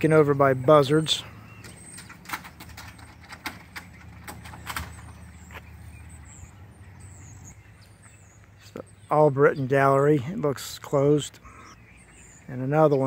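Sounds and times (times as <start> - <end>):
low outdoor rumble: 0.0 - 13.0
footsteps on gravel: 4.8 - 6.0.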